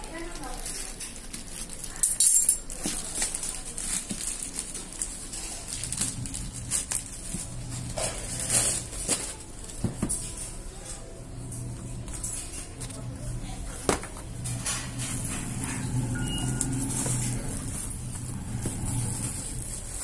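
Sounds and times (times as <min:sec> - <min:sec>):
plastic bag crinkling: 0:00.0 - 0:09.8.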